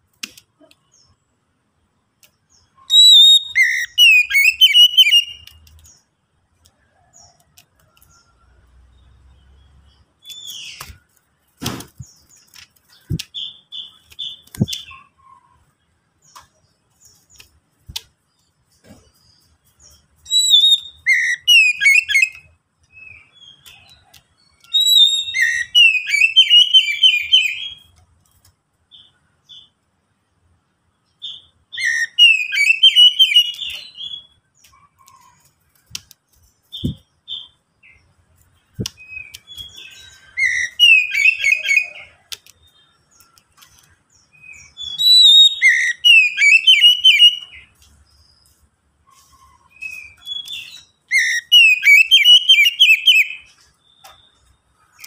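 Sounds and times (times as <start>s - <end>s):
bird singing whistled phrases: 2.8s - 5.5s, 20.3s - 22.4s, 24.6s - 27.9s, 31.3s - 34.4s, 38.9s - 42.2s, 44.4s - 47.6s, 49.4s - 54.2s.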